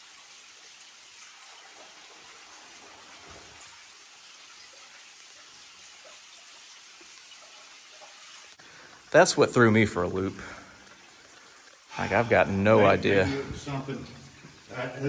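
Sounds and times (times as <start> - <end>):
faint steady hiss: 0.0 - 15.0
small dripping ticks: 10.4 - 11.9.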